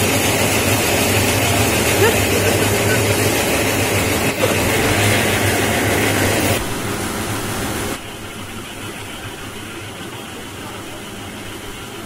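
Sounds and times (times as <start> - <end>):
machine hiss: 0.0 - 12.0
machine low hum: 0.0 - 12.0.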